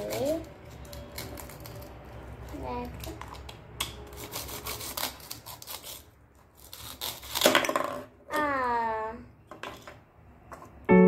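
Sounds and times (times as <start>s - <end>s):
rasping plastic tear: 2.9s - 7.8s
plastic knife scraping plastic: 4.1s - 7.6s.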